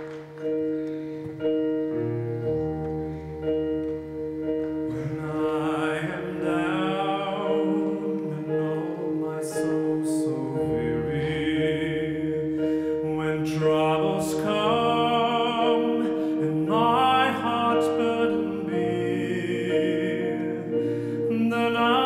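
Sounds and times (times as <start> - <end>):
orchestra held chords: 0.0 - 22.0
wavering melody line: 0.0 - 22.0.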